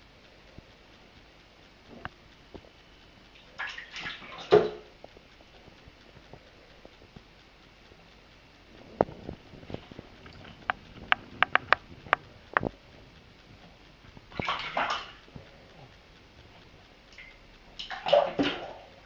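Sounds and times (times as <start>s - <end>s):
kitten splashing in water: 3.6s - 4.8s, 14.3s - 15.2s, 17.1s - 19.0s
sharp clicks: 9.0s - 13.5s.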